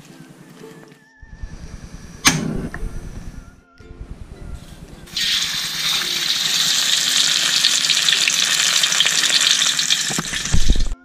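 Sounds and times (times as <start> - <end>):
fish sizzling in hot oil: 5.1 - 11.0.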